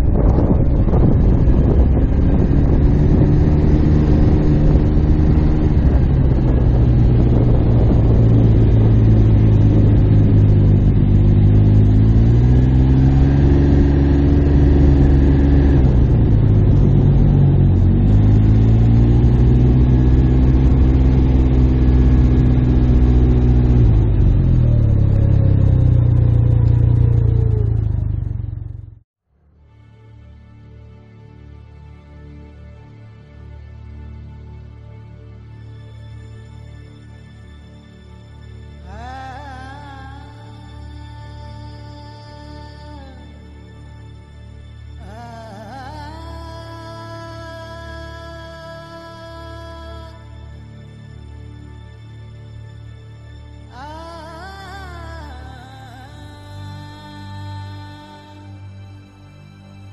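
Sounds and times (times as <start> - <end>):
wind noise: 0.0 - 28.8
motorcycle engine revving: 0.0 - 29.0.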